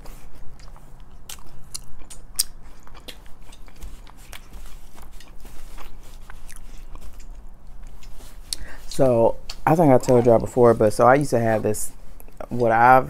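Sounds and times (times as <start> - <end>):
chewing and wet mouth clicks: 0.1 - 8.7, 9.4 - 10.2.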